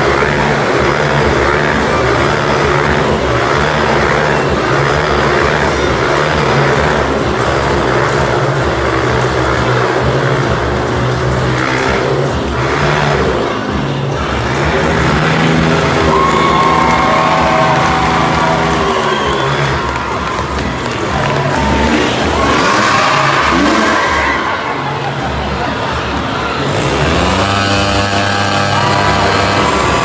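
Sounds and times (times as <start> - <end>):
motorcycle engine at high revs: 0.0 - 16.3, 26.6 - 30.0.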